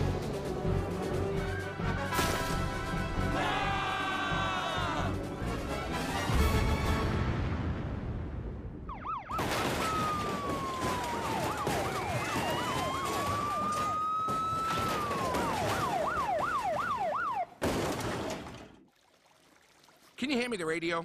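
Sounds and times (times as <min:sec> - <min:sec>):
police sirens yelping and wailing: 0:03.2 - 0:05.3, 0:08.9 - 0:17.6
metal crashing: 0:09.4 - 0:16.9, 0:17.6 - 0:18.8.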